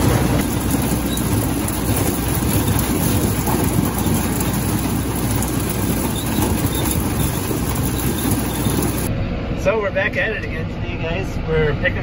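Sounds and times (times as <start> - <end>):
corn ears clattering into wagon: 0.0 - 9.1
corn picker running: 0.0 - 9.1.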